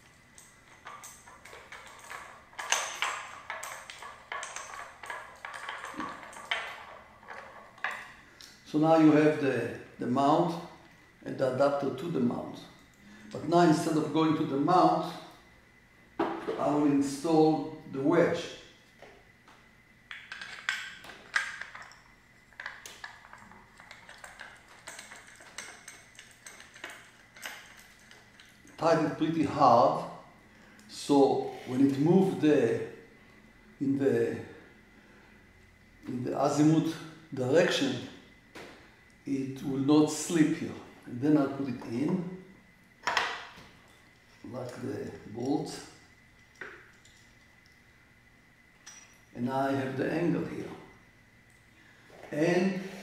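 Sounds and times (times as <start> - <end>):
metal parts clinking: 0.0 - 8.6, 20.1 - 29.2, 46.4 - 47.8, 48.8 - 49.8.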